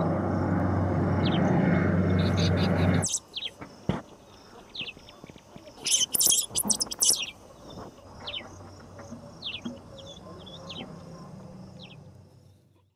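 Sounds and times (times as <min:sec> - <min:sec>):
low hum: 0:00.0 - 0:03.2
high insect drone: 0:00.0 - 0:12.7
falling bird chirps: 0:02.2 - 0:03.6, 0:05.8 - 0:07.4.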